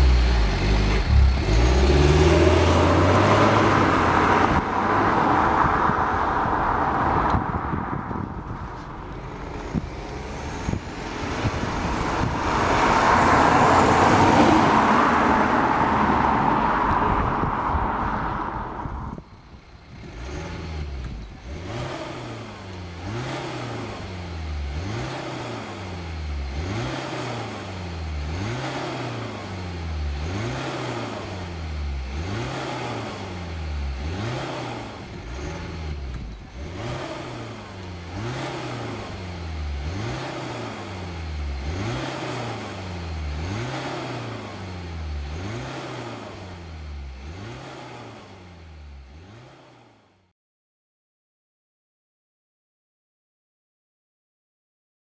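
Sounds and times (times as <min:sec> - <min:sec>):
diesel car engine revving: 0:00.0 - 0:50.3
car driving past: 0:01.5 - 0:19.2.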